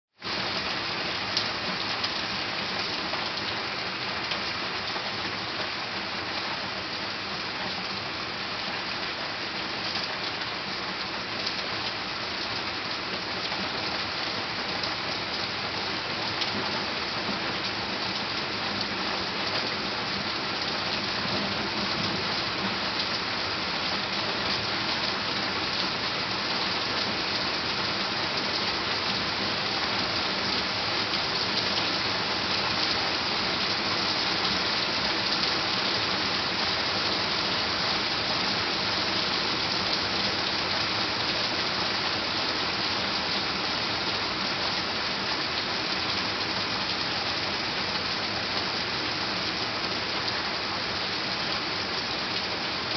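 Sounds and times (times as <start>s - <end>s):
heavy rain pouring: 0.2s - 52.9s.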